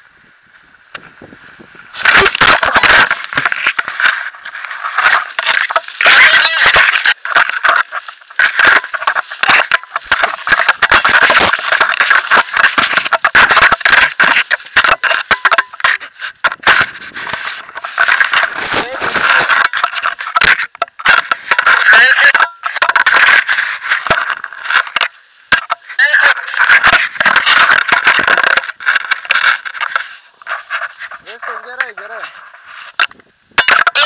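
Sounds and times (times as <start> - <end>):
fabric rubbing on microphone: 16.0 - 20.3, 29.6 - 33.0.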